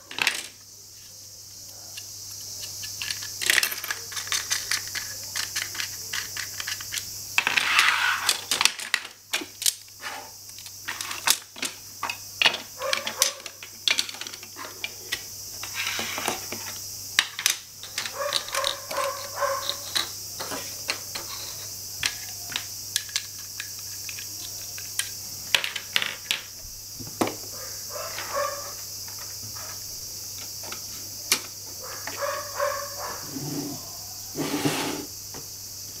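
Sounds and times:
toy tools clicking on wooden floor: 0:01.9 - 0:09.8, 0:10.6 - 0:26.5.

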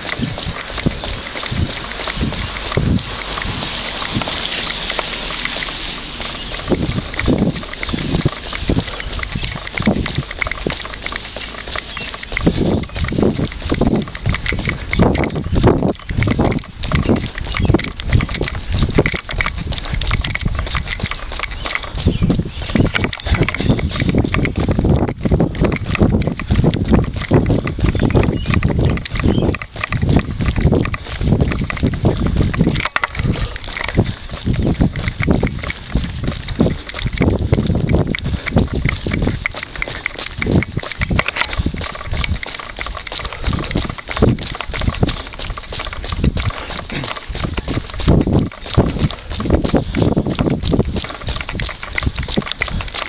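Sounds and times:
footsteps on wet asphalt: 0:00.0 - 0:53.0
wind on microphone: 0:00.0 - 0:53.0.

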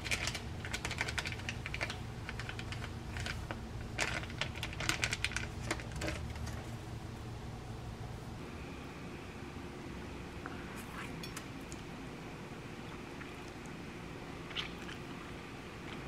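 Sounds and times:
plastic packet crinkling: 0:00.0 - 0:06.6
low steady hum: 0:00.0 - 0:16.0.

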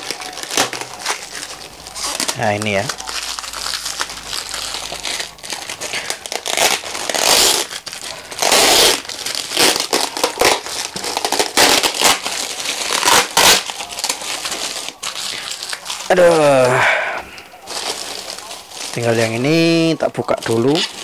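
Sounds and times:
plastic wrapping crinkling: 0:00.0 - 0:21.0.

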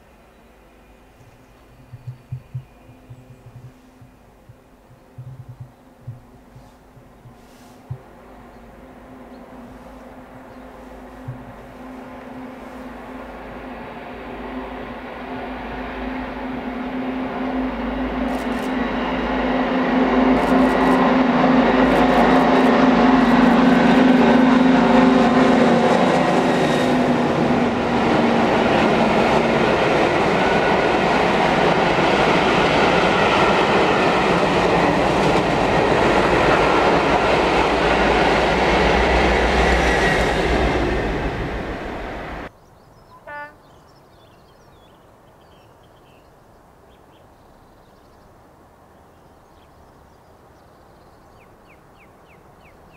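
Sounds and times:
diesel locomotive engine drone: 0:00.0 - 0:42.5
train wheels rumbling on rails: 0:01.1 - 0:42.5.

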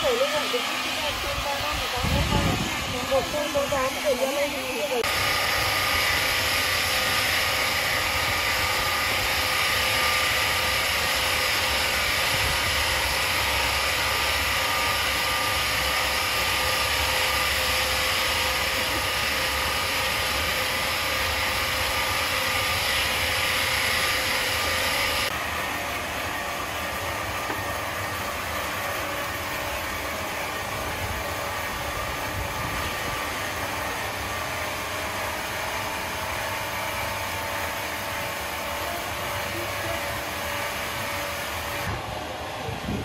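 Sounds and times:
sawmill machinery hissing: 0:00.0 - 0:43.0.

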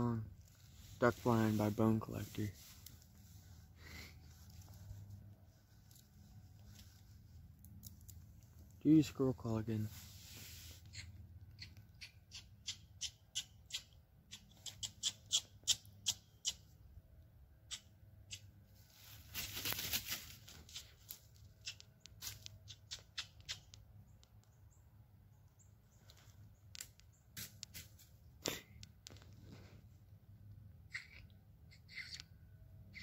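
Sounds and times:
squirrel call chucks: 0:30.9 - 0:32.3.

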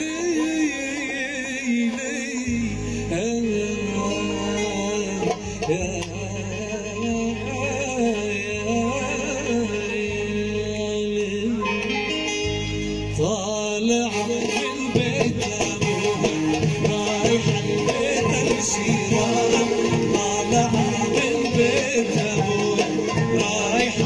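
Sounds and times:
man singing ornamented phrases: 0:00.0 - 0:12.3, 0:13.2 - 0:24.0
instrumental accompaniment: 0:00.0 - 0:24.0.

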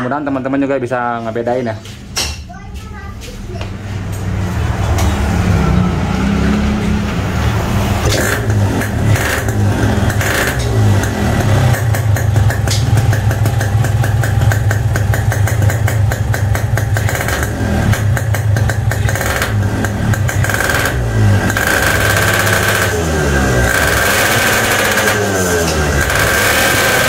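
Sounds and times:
exhaust popping: 0:03.3 - 0:27.0
motorcycle engine revving: 0:03.9 - 0:27.0.

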